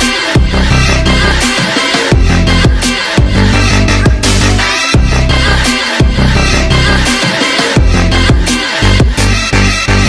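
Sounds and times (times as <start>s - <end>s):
electronic music with heavy bass: 0.0s - 10.0s
kick drum: 0.4s - 0.8s, 2.1s - 4.4s, 5.0s - 5.3s, 6.0s - 6.4s, 7.8s - 9.2s.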